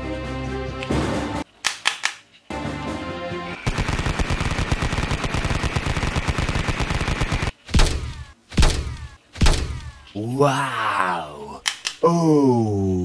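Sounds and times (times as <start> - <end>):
music: 0.0 - 1.5, 2.5 - 3.6
machine-gun fire: 3.6 - 10.0.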